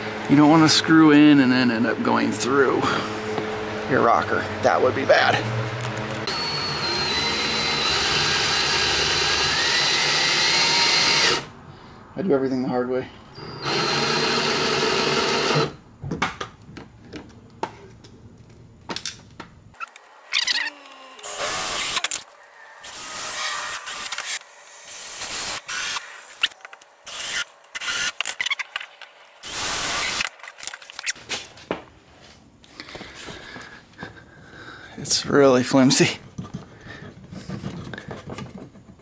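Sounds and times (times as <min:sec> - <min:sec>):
cordless drill driving screws: 0:06.3 - 0:11.5, 0:13.4 - 0:15.8, 0:20.4 - 0:28.3, 0:29.4 - 0:30.3.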